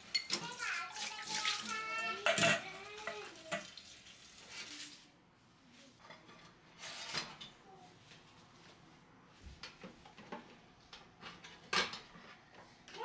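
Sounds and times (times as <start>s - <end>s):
dish rack and bottles clinking: 0.0s - 3.7s.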